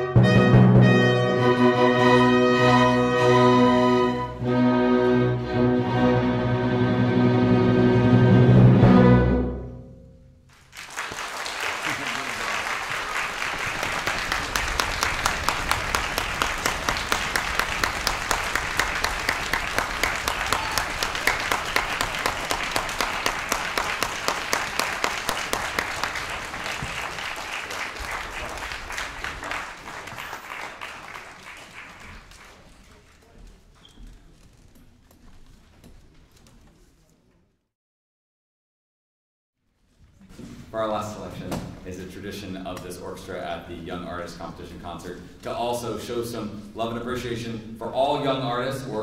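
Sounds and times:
orchestral chord: 0.0s - 10.4s
audience applauding: 10.5s - 33.6s.

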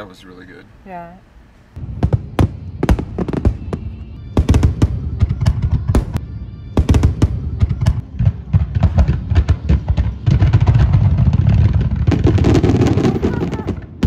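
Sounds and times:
fireworks bursting: 1.8s - 14.0s
music playing: 2.4s - 10.7s.

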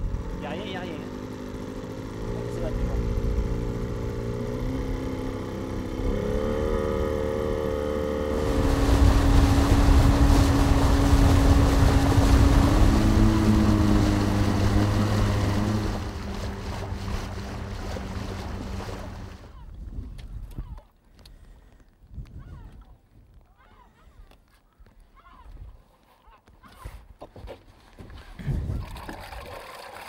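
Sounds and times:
boat motor running: 0.0s - 19.8s
rush of water and wind: 6.0s - 20.8s, 28.4s - 29.6s.

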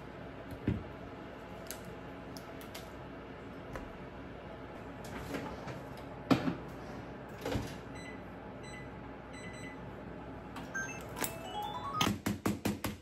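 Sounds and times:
short keypad beeps: 10.7s - 12.1s.

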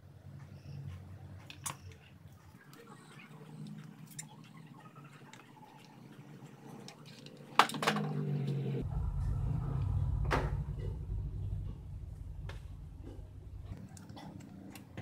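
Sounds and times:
low rumble of handling: 8.0s - 14.9s.

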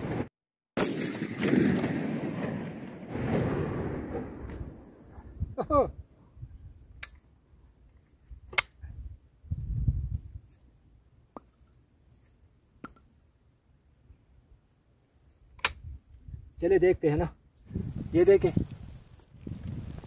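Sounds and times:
shotgun metallic clicks: 8.5s - 8.8s, 15.3s - 15.9s.

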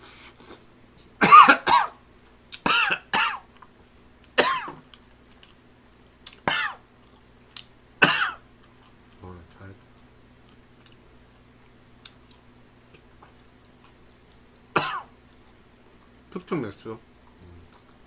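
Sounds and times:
man coughing: 1.2s - 2.0s, 2.7s - 3.4s, 4.4s - 4.8s, 6.5s - 6.8s, 8.0s - 8.4s, 14.8s - 15.1s.

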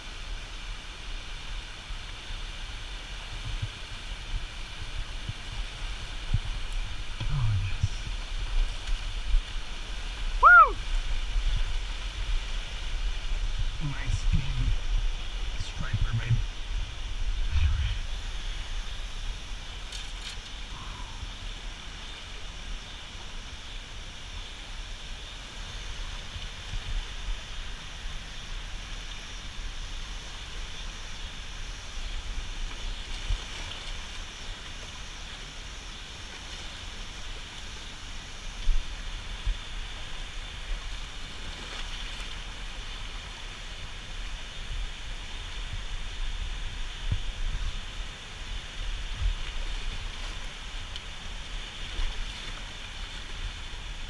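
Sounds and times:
water rushing: 0.0s - 54.0s
wind on microphone: 1.6s - 21.8s, 43.8s - 54.0s.

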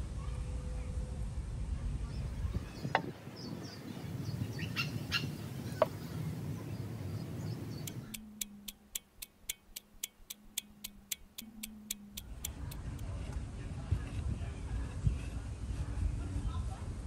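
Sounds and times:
low outdoor hum: 0.0s - 17.0s
birds chirping: 2.1s - 12.9s
faint low tone: 7.8s - 9.0s, 10.3s - 16.4s
even ticking: 7.8s - 13.0s.

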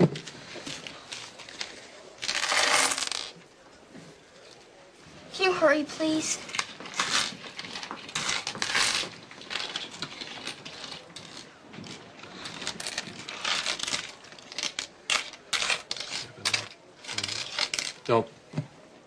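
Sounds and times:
coins clinking on wooden counter: 0.7s - 3.4s, 6.5s - 18.1s.

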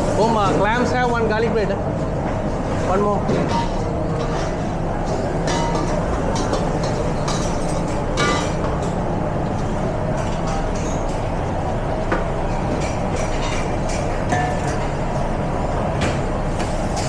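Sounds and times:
extraction fans rumbling: 0.0s - 17.0s
metal utensils and dishes clinking: 3.2s - 9.0s, 12.5s - 15.0s.

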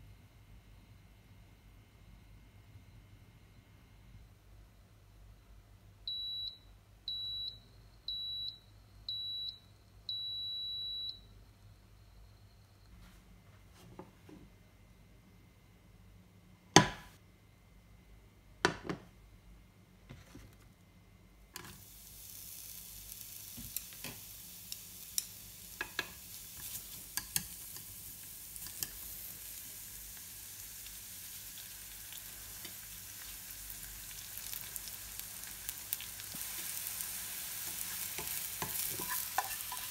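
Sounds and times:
rice cooker beeping: 6.1s - 11.3s
oil sizzling in a frying pan: 21.6s - 39.9s.

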